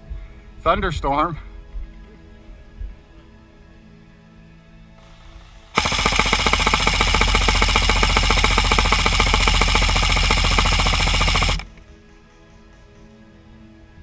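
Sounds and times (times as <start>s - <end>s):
airsoft gun full-auto rattle: 5.0s - 11.8s.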